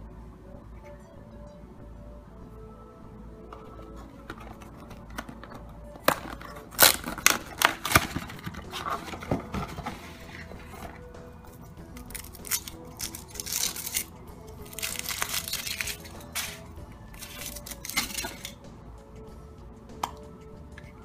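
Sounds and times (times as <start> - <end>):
background music: 0.0 - 21.0
chocolate shell snapping: 4.3 - 8.5, 12.0 - 16.6, 17.2 - 18.6
foil wrapper crinkling: 4.3 - 11.1, 12.0 - 16.6, 17.2 - 18.6.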